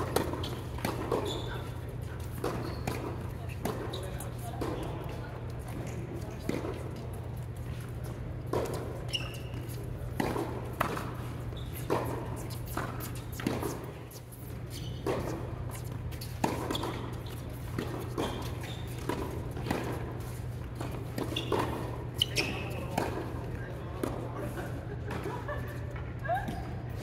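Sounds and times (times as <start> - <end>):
tennis racquet strikes: 0.0 - 5.0, 8.5 - 14.2, 15.0 - 23.4
tennis ball bouncing: 0.0 - 24.2.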